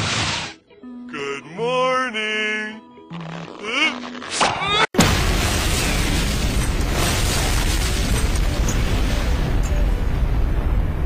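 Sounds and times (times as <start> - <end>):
explosion blast: 5.0 - 11.0.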